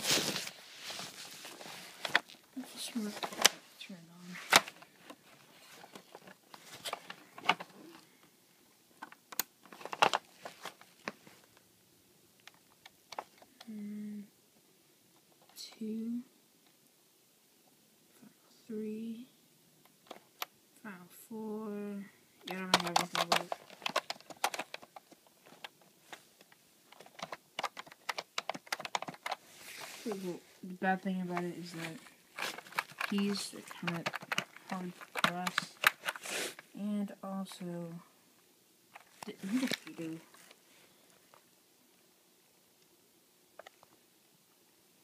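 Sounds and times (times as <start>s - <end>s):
keyboard key clacks: 27.0s - 29.4s.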